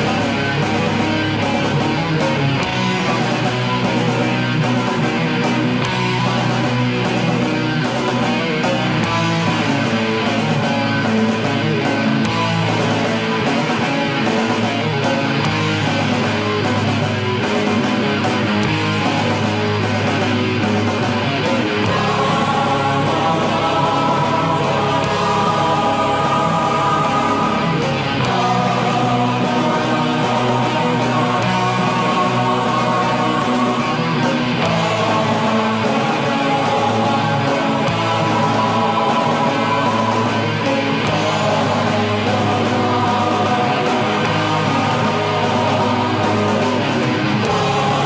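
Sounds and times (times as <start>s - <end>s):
guitar: 0.0s - 48.0s
person singing: 21.6s - 48.0s.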